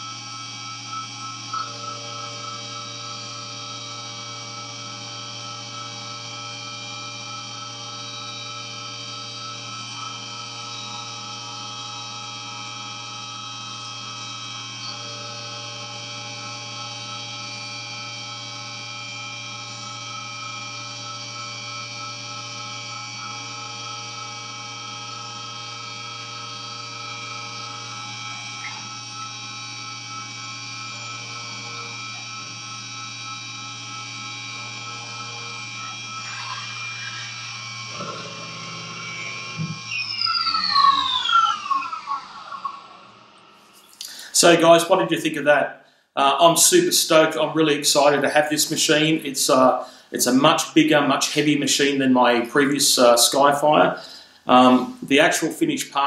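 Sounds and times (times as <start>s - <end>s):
milling machine cutting metal: 0.0s - 43.6s.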